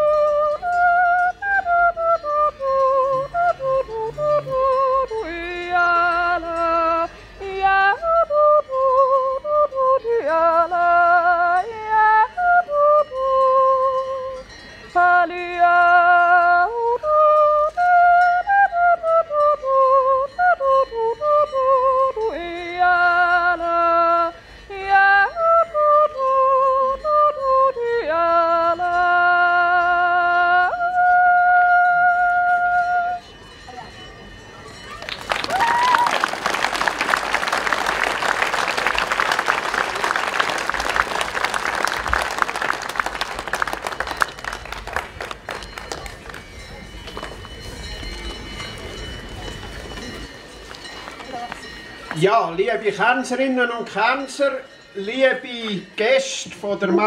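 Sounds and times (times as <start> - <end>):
woman yodeling: 0.0 - 14.4, 15.0 - 33.2, 35.4 - 36.2.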